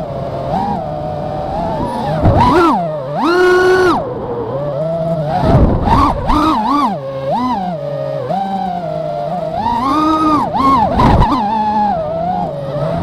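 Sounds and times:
drone motors whining: 0.0 - 13.0
wind rumble on microphone: 1.3 - 2.7, 5.3 - 6.6, 10.6 - 13.0.

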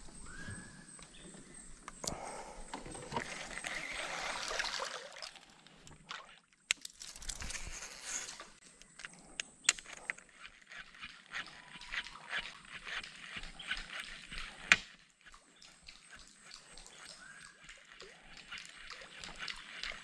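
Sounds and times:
water splashing beside boat: 2.8 - 6.4.

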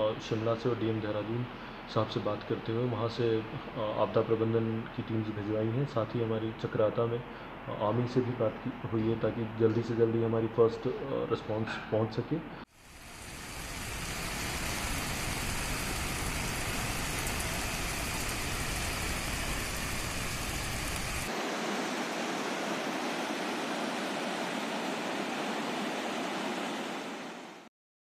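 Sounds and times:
flooded river roaring: 13.0 - 27.5.

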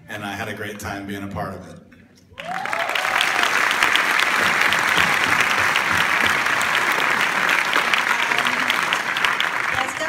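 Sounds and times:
audience applauding: 2.4 - 10.0.

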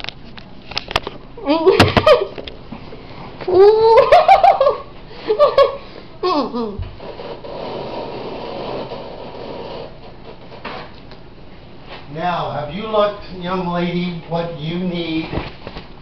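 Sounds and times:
person laughing with full mouth: 1.4 - 2.4, 3.5 - 6.8.

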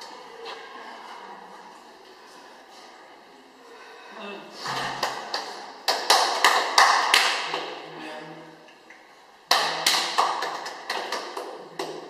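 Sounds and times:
hands clapping: 5.0 - 7.8, 9.5 - 12.0.

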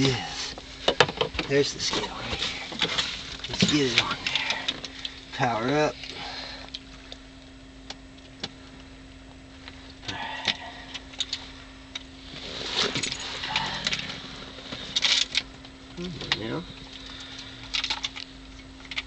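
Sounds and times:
steady low hum: 0.0 - 19.0
fishing gear rustling: 12.3 - 15.6.

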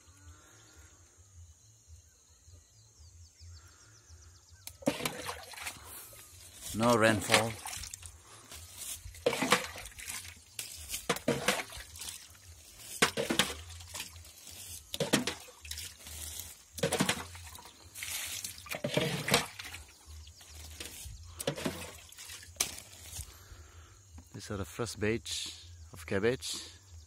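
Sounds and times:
footsteps through leaves and soil: 4.8 - 23.5.

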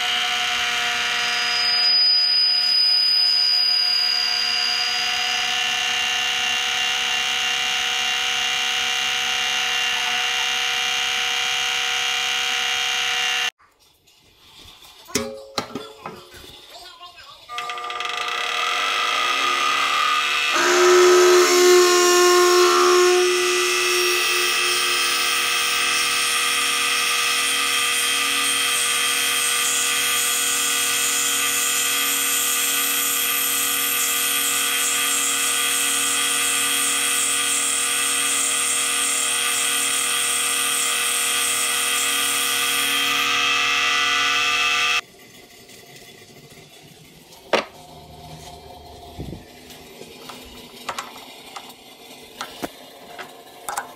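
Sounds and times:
drill boring into metal: 0.0 - 13.5, 17.5 - 45.0
lathe motor and gear whine: 0.0 - 13.5, 17.5 - 45.0.

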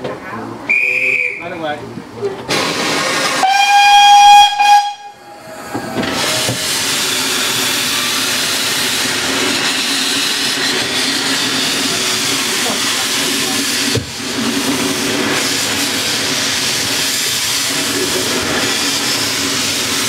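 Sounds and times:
train carriages running: 0.1 - 20.0
steam hiss: 2.5 - 3.6, 5.3 - 20.0
steam whistle blast: 3.3 - 5.4.

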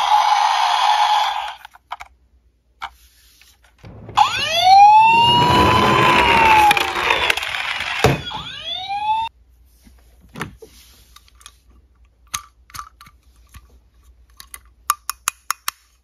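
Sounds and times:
toy electronic siren wailing: 0.0 - 1.6, 4.2 - 9.3
toy rolling on floor: 4.4 - 9.0.

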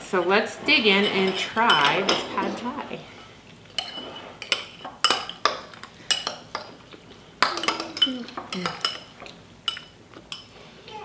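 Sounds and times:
metal spoons clinking on glass bowls: 1.0 - 2.7, 3.8 - 6.8, 7.4 - 10.5.

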